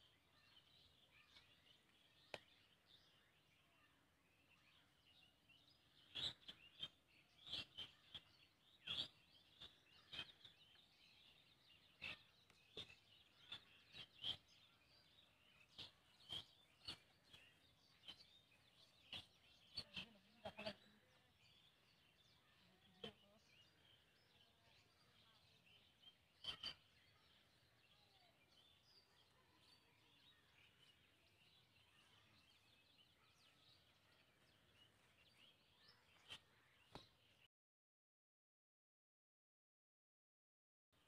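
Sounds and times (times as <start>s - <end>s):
faint bird chirping: 0.0s - 37.5s.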